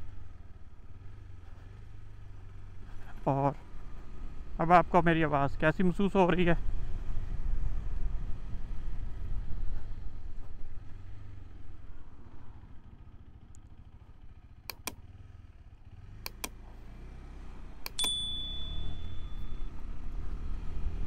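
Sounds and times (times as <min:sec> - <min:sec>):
motorcycle engine rumble: 0:00.0 - 0:21.0
wind: 0:00.0 - 0:21.0
sharp clicks: 0:14.7 - 0:15.0, 0:16.2 - 0:16.6, 0:17.8 - 0:19.0
brief high tone: 0:18.0 - 0:19.8.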